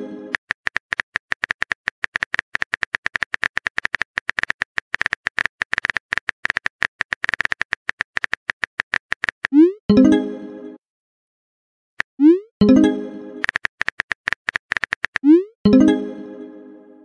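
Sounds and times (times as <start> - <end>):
phone keyboard typing taps: 13.4 - 15.3.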